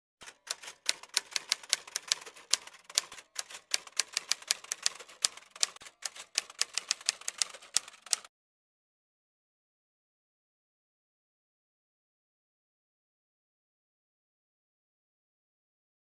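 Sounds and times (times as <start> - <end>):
typewriter keys clacking: 0.2 - 8.3.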